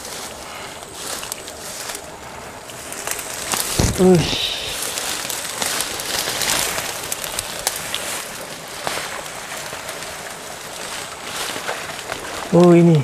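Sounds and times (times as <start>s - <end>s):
light rain hissing: 0.0s - 13.0s
undergrowth rustling and snapping: 0.0s - 13.0s.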